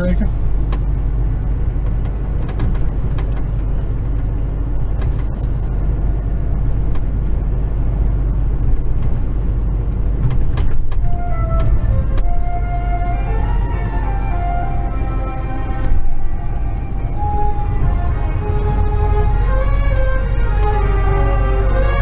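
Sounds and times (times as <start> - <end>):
truck diesel engine rumbling: 0.0 - 22.0
music: 11.0 - 19.4.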